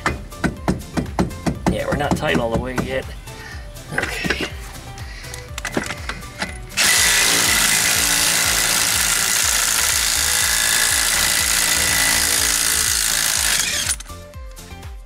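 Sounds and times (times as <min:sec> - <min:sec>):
impact wrench hammering: 0:05.6 - 0:14.1.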